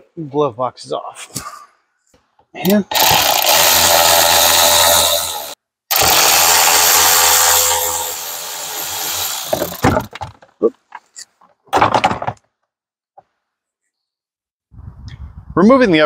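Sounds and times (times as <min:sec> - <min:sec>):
cordless ratchet running: 0:02.9 - 0:09.8.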